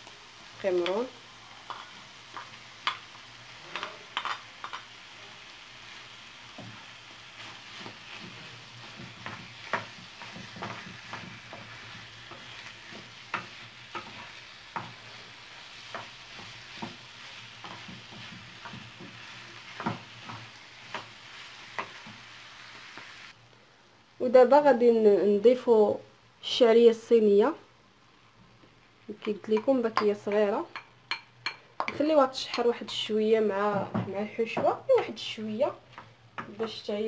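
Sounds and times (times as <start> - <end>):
food sizzling in frying pan: 0.0 - 23.4.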